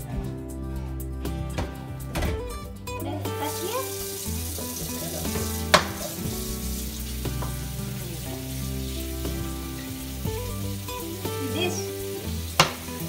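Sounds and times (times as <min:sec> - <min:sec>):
background music with held chords: 0:00.0 - 0:13.0
hands rinsed under water: 0:03.3 - 0:13.0
tap water running into sink: 0:03.3 - 0:13.0.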